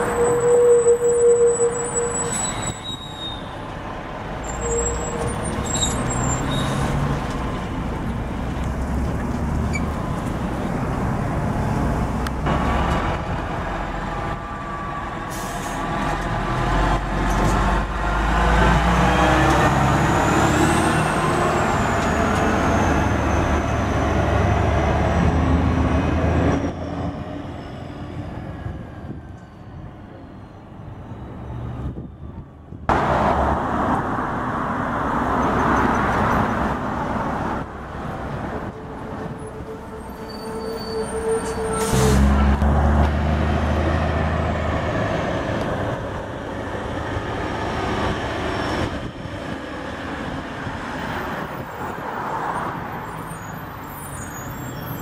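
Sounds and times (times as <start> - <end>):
high squeal: 0.0 - 3.7, 4.4 - 7.0, 39.4 - 42.6, 52.6 - 55.0
trucks passing with engine rumble: 0.0 - 55.0.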